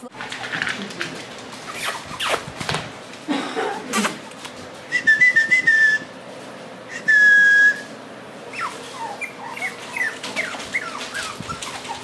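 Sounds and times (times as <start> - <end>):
puppies whining: 0.8 - 2.7, 6.9 - 12.0.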